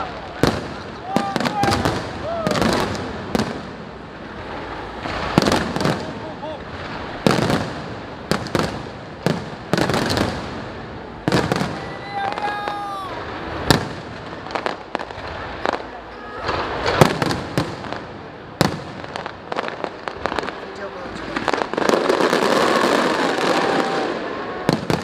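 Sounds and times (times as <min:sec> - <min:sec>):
fireworks crackling: 0:00.0 - 0:25.0.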